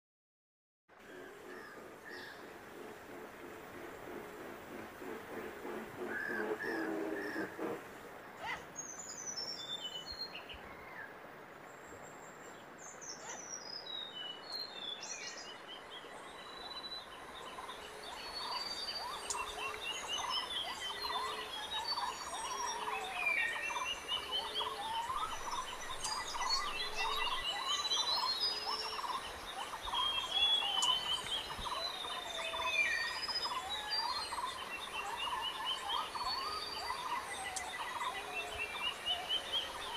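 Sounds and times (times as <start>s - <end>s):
birds calling and singing: 1.0s - 11.1s, 11.9s - 39.9s.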